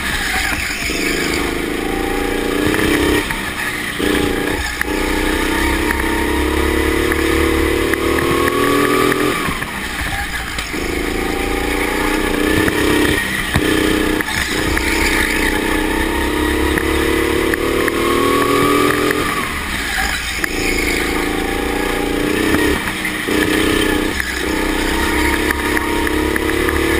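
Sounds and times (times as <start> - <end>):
go-kart engine running hard: 0.0 - 26.9
higher tone rising and falling: 0.0 - 26.9.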